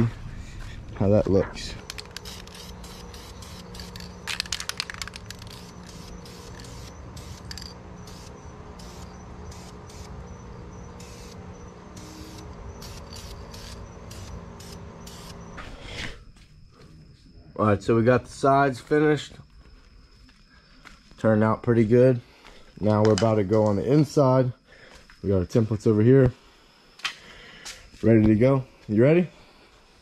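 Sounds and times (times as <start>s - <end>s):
spray paint can hissing: 1.9s - 10.1s, 12.0s - 15.4s.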